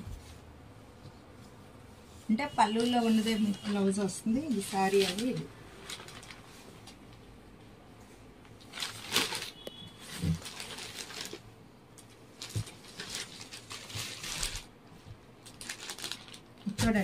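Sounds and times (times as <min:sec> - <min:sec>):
fabric rustling and flapping: 0:00.0 - 0:07.4, 0:08.6 - 0:11.5.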